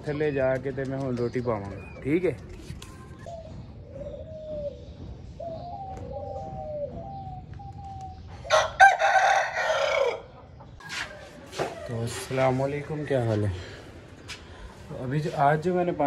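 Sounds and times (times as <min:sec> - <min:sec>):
rooster crowing: 0:08.5 - 0:10.3.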